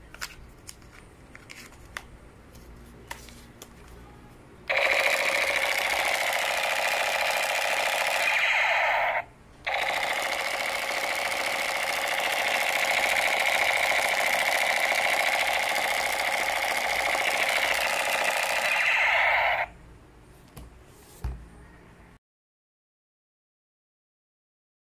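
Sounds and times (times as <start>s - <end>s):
toy machine gun rattle: 4.7s - 19.7s.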